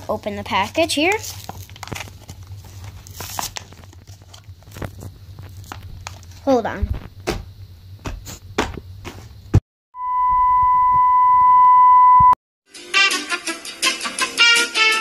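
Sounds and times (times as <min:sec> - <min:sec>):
plastic package rustling: 0:00.0 - 0:06.4
high test-tone beep: 0:10.0 - 0:12.4.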